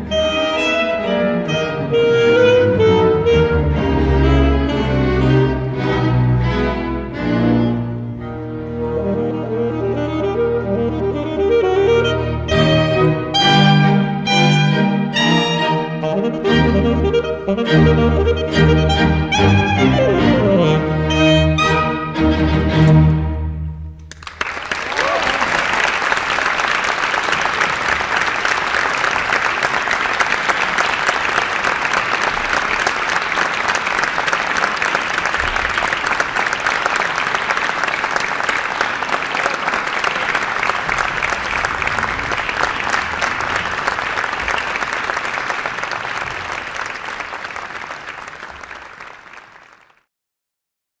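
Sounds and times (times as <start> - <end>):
audience applauding: 24.0 - 50.1.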